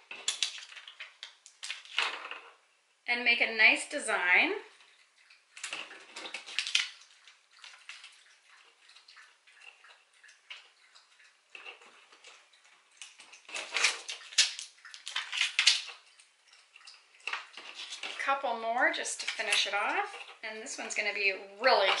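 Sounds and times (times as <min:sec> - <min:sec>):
light crinkling and scraping: 0:00.0 - 0:02.6, 0:04.7 - 0:22.0
rustling: 0:11.6 - 0:21.0.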